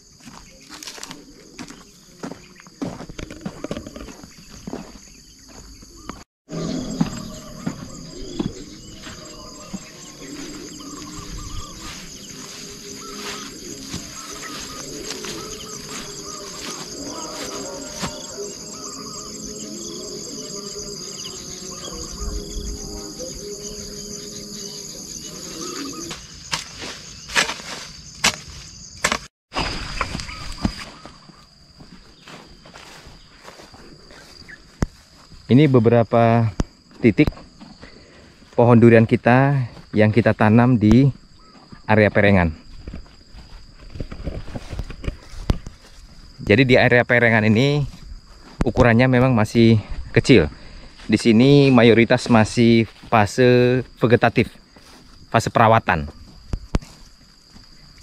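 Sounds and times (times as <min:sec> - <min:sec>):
footsteps on ground: 0:00.0 - 0:38.8, 0:39.4 - 0:40.2, 0:40.8 - 0:46.6, 0:47.6 - 0:58.0
insects buzzing and chirping: 0:00.0 - 0:58.0
lower gliding calls: 0:05.9 - 0:26.5.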